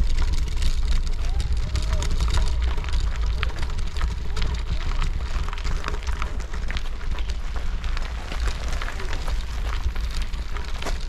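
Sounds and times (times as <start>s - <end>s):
footsteps crunching on gravel: 0.0s - 11.0s
wind rumbling on microphone: 0.0s - 11.0s.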